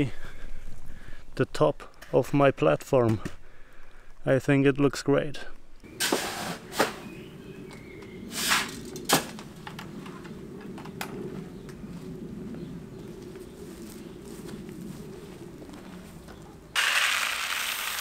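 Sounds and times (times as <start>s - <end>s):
gravelly rustle: 5.5s - 18.0s.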